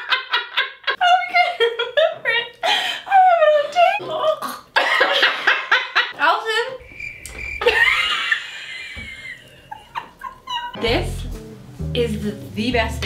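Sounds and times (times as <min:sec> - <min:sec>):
women laughing: 0:00.0 - 0:04.0, 0:04.8 - 0:06.2, 0:07.6 - 0:10.8
high held squeal: 0:06.8 - 0:08.7.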